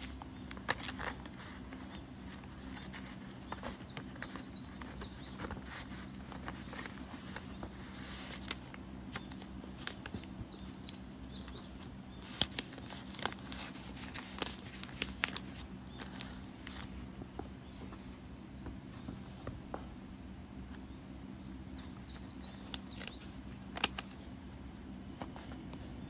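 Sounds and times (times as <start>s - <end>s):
paper and plastic crinkling: 0.0s - 10.4s, 11.3s - 18.2s, 21.8s - 24.3s
steady low hum: 0.0s - 26.0s.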